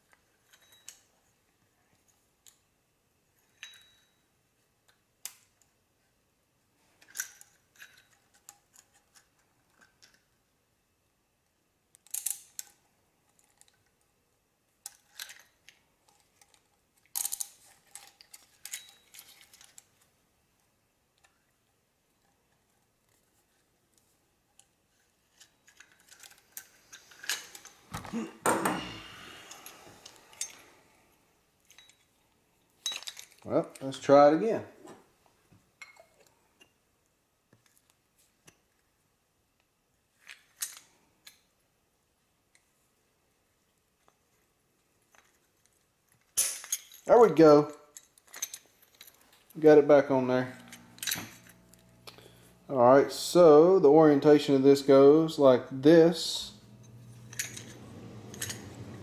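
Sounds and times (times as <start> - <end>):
metal tools clinking: 0.4 - 1.1, 3.4 - 4.2, 7.0 - 8.9, 16.4 - 19.9, 25.3 - 27.9, 28.6 - 30.8, 31.6 - 32.1, 32.8 - 34.0, 46.3 - 47.1, 47.9 - 52.5, 56.2 - 59.0.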